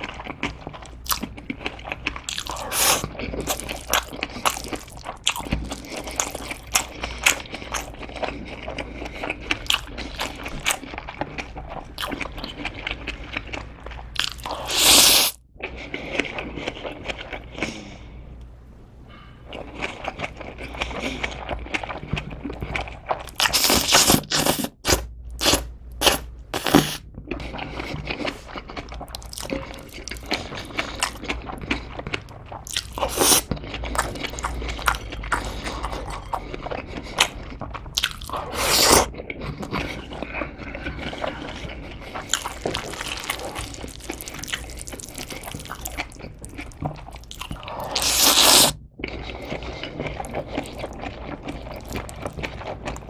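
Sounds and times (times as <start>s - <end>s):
chewing: 0.0s - 17.9s, 25.4s - 53.0s
loud noodle slurps: 47.8s - 48.8s.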